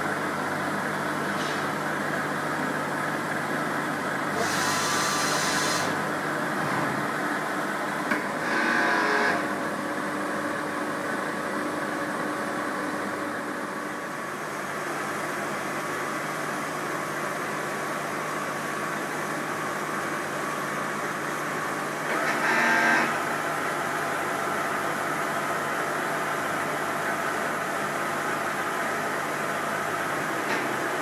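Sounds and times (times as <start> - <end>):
milling machine humming: 2.0 - 15.7, 21.4 - 31.0
machine whine: 8.1 - 9.5, 22.1 - 23.3.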